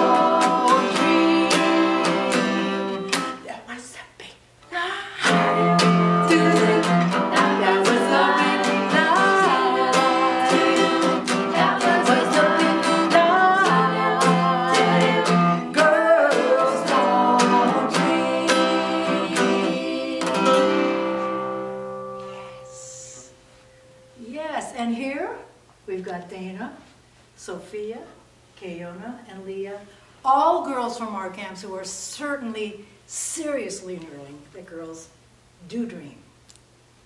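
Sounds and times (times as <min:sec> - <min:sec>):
woman singing: 0:00.0 - 0:03.2, 0:04.6 - 0:21.3
acoustic guitar strumming: 0:00.0 - 0:03.5, 0:05.2 - 0:24.2.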